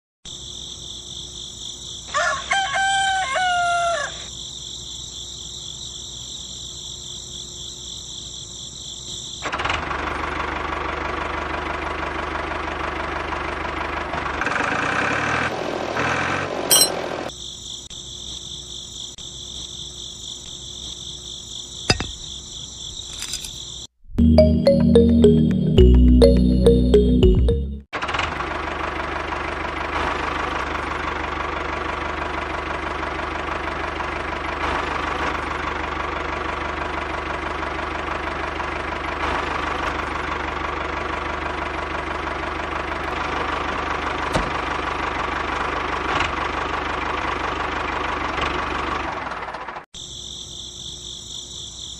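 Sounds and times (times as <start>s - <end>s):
high-pitched insect chorus: 0.3s - 2.5s, 3.9s - 9.4s, 50.0s - 51.9s
rooster crowing: 2.1s - 4.3s.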